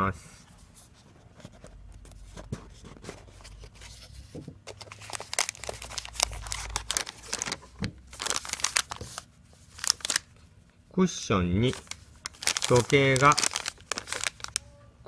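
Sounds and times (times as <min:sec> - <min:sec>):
wrapping crinkling and rustling: 0:04.7 - 0:10.4, 0:11.6 - 0:14.6.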